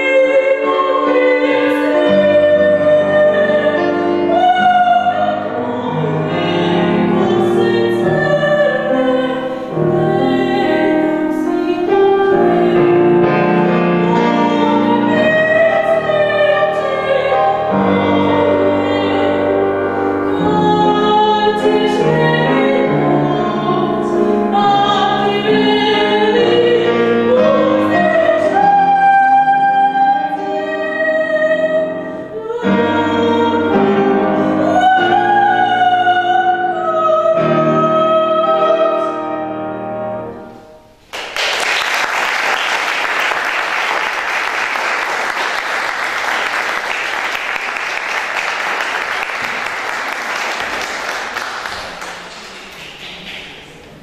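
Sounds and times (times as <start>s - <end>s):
woman singing classical: 0.0s - 40.4s
grand piano accompaniment: 0.0s - 54.0s
audience applause: 41.1s - 53.8s.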